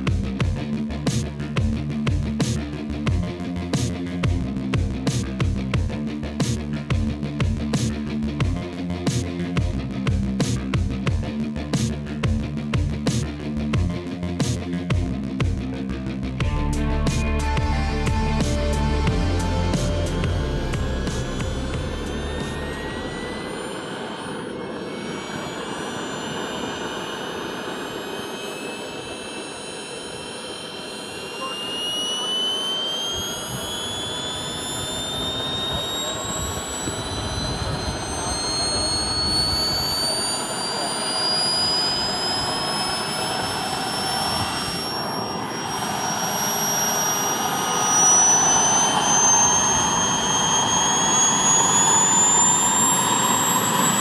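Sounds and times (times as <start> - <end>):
jet turbine whine rising: 0.0 - 54.0
rushing exhaust noise: 16.2 - 54.0.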